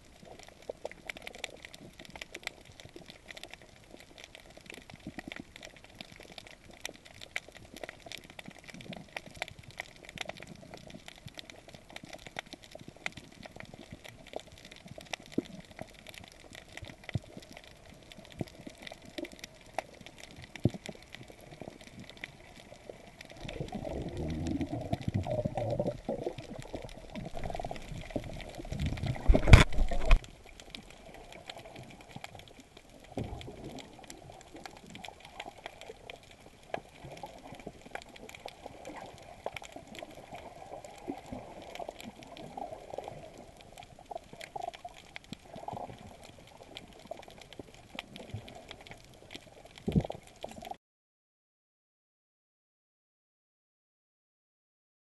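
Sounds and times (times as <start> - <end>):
faint underwater crackle of clicks: 0.0 - 50.8
churning bubbles and water rush: 7.0 - 50.8.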